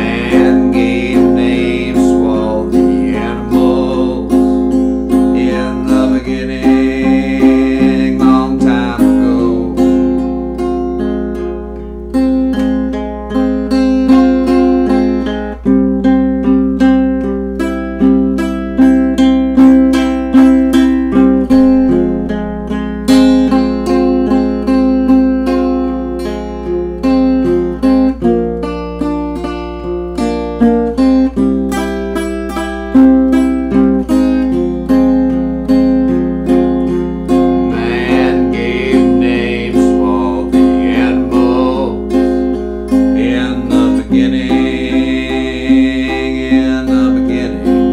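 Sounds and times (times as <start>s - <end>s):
person singing: 0.0s - 11.5s, 36.4s - 47.9s
acoustic guitar strumming: 0.0s - 47.9s.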